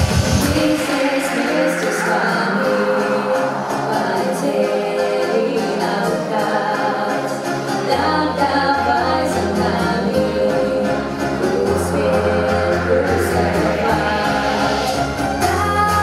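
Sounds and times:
pop dance song with singing: 0.0 - 16.0
deep bass line: 7.9 - 16.0.

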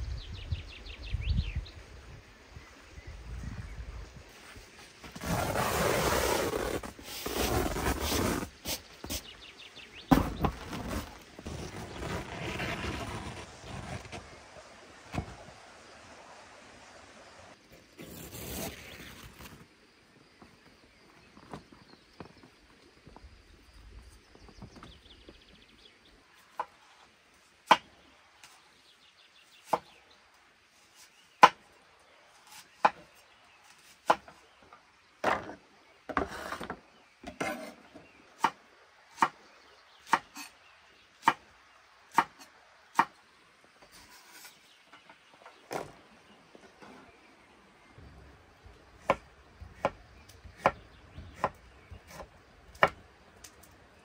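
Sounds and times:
scraping strokes: 43.9 - 44.7.

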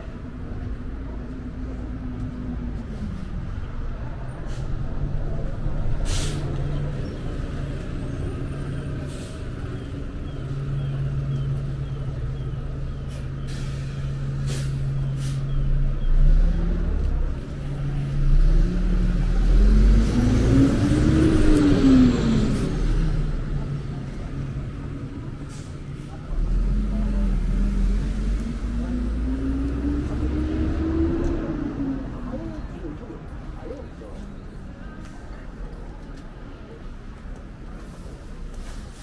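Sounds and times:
bus engine: 0.0 - 39.0
short sharp hisses: 6.1 - 6.4.

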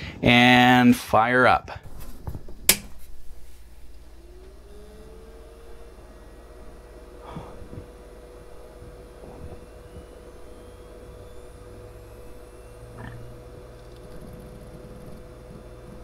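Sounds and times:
thin fan whine: 0.0 - 16.0
drive unit humming: 1.8 - 16.0.

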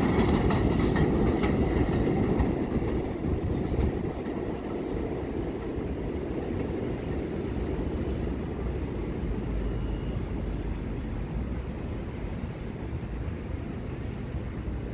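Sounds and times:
low city rumble: 0.0 - 14.9.

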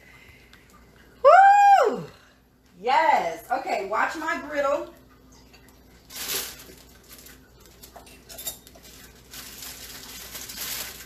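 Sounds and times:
dishes and utensils clattering: 6.3 - 9.4.

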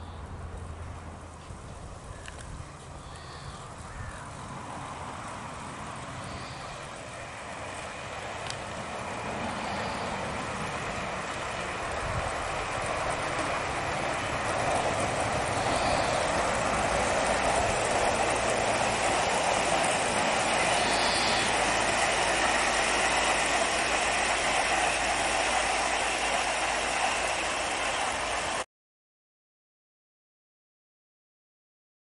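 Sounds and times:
model train rolling on track: 0.0 - 28.6.

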